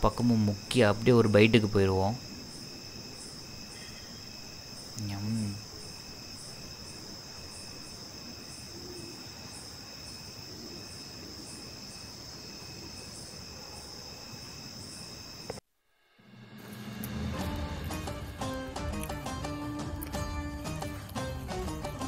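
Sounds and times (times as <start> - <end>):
crickets trilling: 0.0 - 15.6
music: 16.2 - 22.0.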